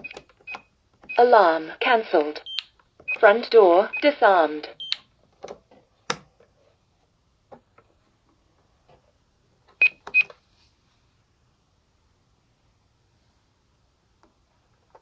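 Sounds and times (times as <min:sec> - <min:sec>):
keypad beeps: 0:00.0 - 0:01.2, 0:02.4 - 0:04.1, 0:04.8 - 0:05.1, 0:09.8 - 0:10.3.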